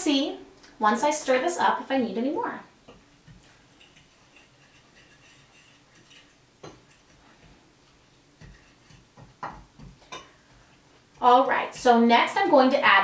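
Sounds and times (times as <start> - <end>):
fork scraping and tapping glass dish: 2.9 - 7.6, 8.4 - 10.7.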